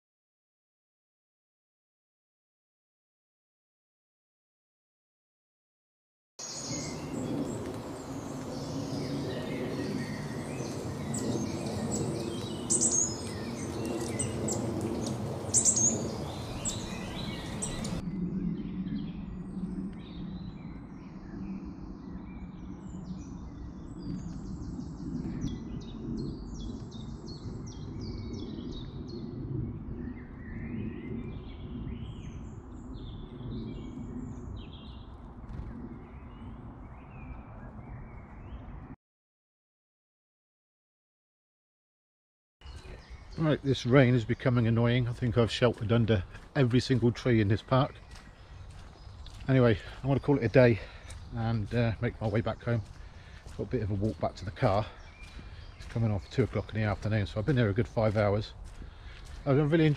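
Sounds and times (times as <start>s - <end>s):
songbirds chirping and trilling: 6.4s - 39.0s, 42.6s - 59.9s
low rumble: 6.8s - 39.0s.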